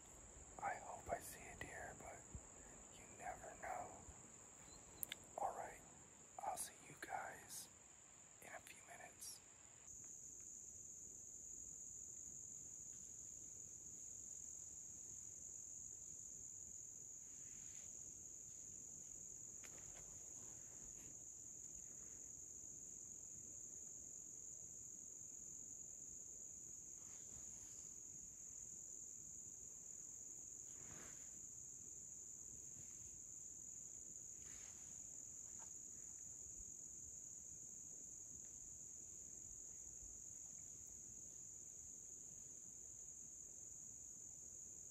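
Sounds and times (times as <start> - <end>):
high-pitched insect chorus: 0.0 - 44.9
faint ticks: 4.0 - 5.7.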